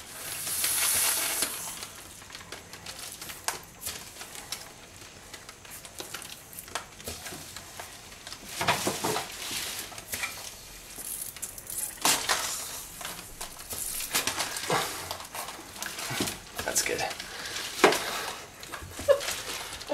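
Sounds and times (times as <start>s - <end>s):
short hissing bursts: 0.1s - 1.8s.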